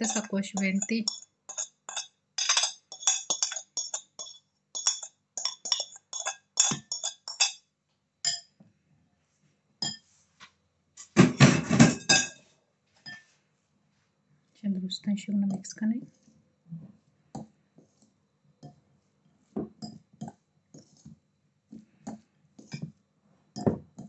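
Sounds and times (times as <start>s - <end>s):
fork clinking in glass bowl: 0.0s - 7.6s, 11.8s - 12.4s
spoon clinking against glass bowl: 0.0s - 7.6s, 8.2s - 8.5s, 9.8s - 10.1s, 11.8s - 12.4s, 19.8s - 20.0s
spoon scraping a ceramic plate: 0.0s - 7.6s, 20.7s - 21.1s.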